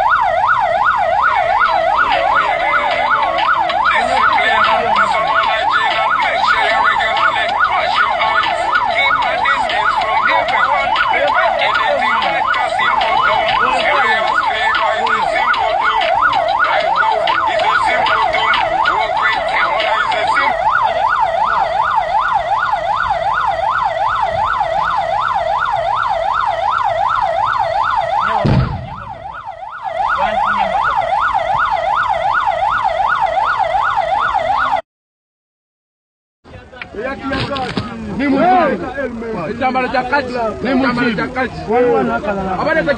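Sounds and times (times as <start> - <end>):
vehicle siren yelping: 0.0 - 34.8, 38.0 - 42.9
thump: 28.4 - 29.1.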